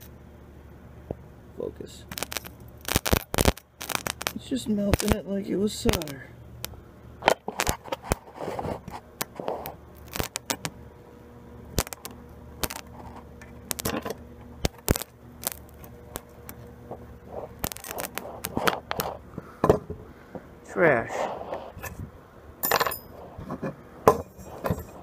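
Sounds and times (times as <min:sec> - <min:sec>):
steady low hum: 0:00.0 - 0:25.0
crackles and snaps of sparking: 0:01.9 - 0:10.8, 0:11.6 - 0:19.4.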